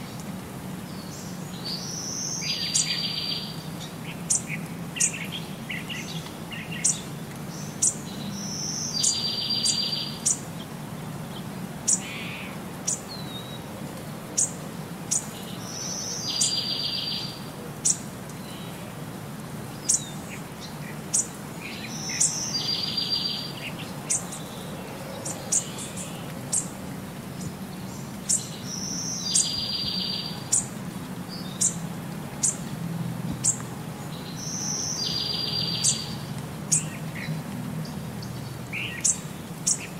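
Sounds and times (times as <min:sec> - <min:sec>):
bird chirps: 0:28.3 - 0:30.7, 0:34.2 - 0:37.3.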